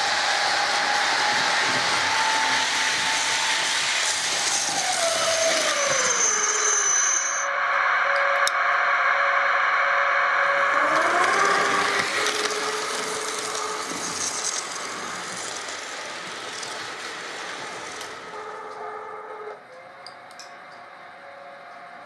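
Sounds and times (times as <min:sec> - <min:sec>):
rattle of train wheels: 0:00.0 - 0:07.4, 0:10.8 - 0:20.9
model train motor whine: 0:00.0 - 0:22.0.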